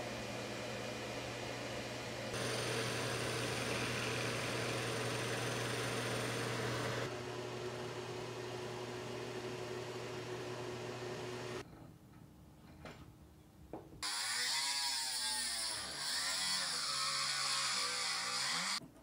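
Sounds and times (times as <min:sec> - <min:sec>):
shop vacuum running: 0:00.0 - 0:11.6
electric motor humming: 0:02.3 - 0:11.6
chisel turning wood: 0:02.4 - 0:07.0.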